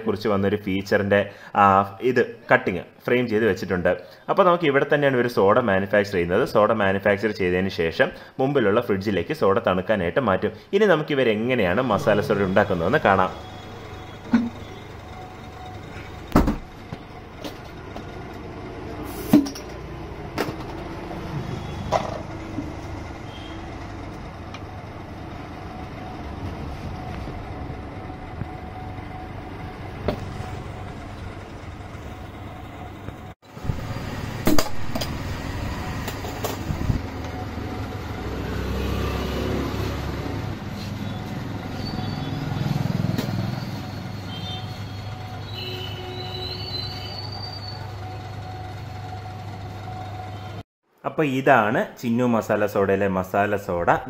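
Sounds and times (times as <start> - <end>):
passing street traffic: 11.7 - 50.6.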